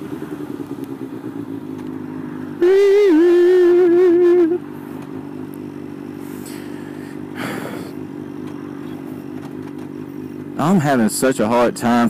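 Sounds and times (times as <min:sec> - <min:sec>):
motorcycle engine idling: 0:00.0 - 0:12.0
loud held tone: 0:02.6 - 0:04.7.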